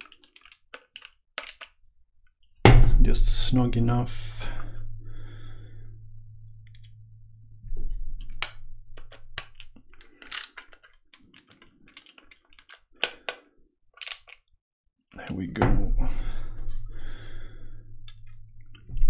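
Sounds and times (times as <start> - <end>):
screwdriver clicking and scraping: 0.0 - 1.7, 8.4 - 13.4, 14.0 - 14.5.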